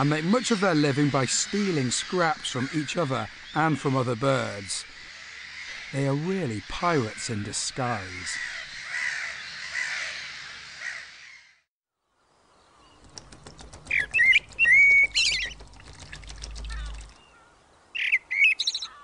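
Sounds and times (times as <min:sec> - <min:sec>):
blackbird singing: 0:12.8 - 0:19.0
gulls calling harshly: 0:13.4 - 0:19.0.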